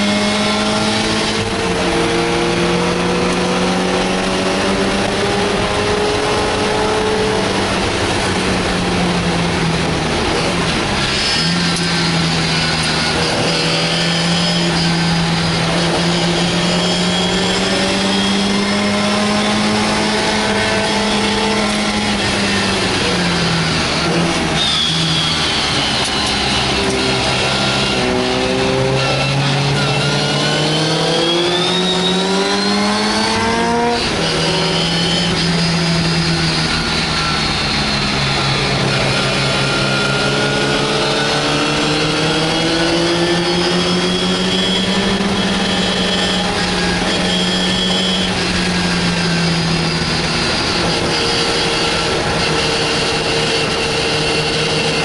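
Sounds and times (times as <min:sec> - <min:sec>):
race car engine revving: 0:00.0 - 0:55.0.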